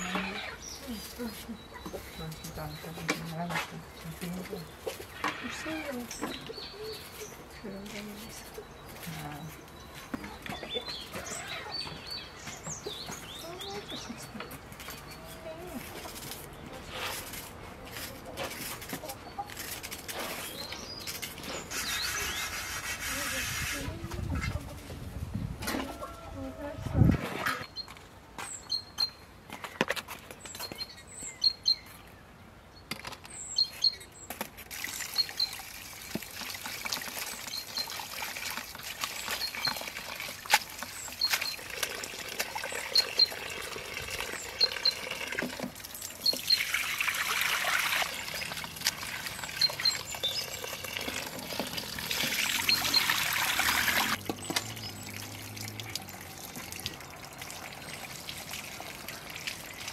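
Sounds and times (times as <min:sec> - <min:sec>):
small birds chirping: 0:00.0 - 0:25.4, 0:27.6 - 0:57.0
water splashing into metal bowl: 0:34.7 - 0:59.9.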